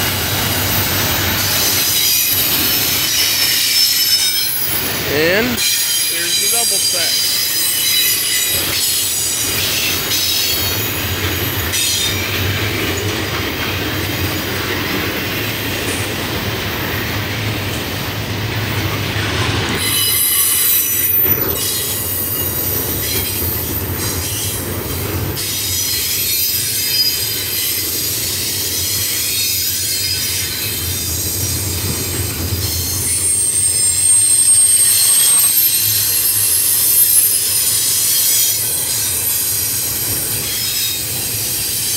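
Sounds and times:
train rumble and clatter: 0:00.0 - 0:41.9
train wheels squealing on rail: 0:00.0 - 0:41.9.

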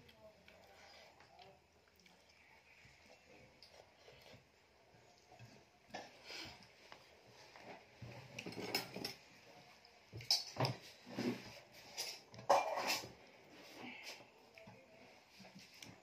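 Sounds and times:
clinks and scrapes on metal plate: 0:11.2 - 0:13.1.

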